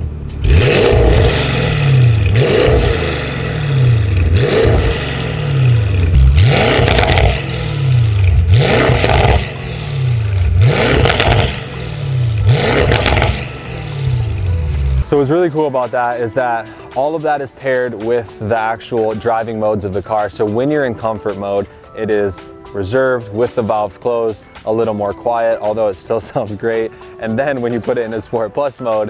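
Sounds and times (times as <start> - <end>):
car engine revving: 0.0 - 16.7.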